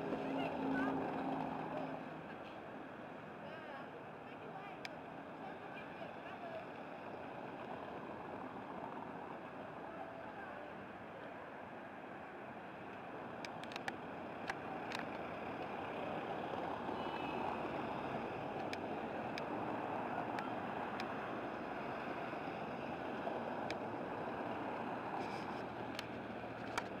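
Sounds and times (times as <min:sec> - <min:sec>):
faint ticks: 0:12.9 - 0:15.7, 0:23.6 - 0:23.9, 0:24.8 - 0:27.0.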